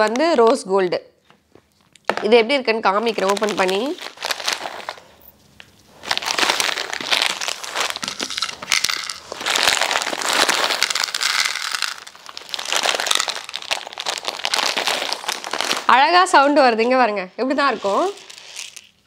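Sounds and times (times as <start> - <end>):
plastic packet crinkling: 2.9 - 16.5, 17.7 - 19.0.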